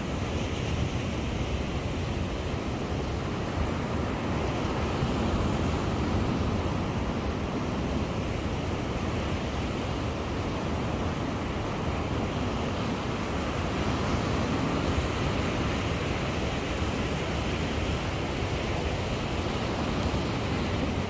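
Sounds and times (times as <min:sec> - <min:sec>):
sea surf washing onto beach: 0:00.0 - 0:21.0
wind rumbling on microphone: 0:00.0 - 0:21.0.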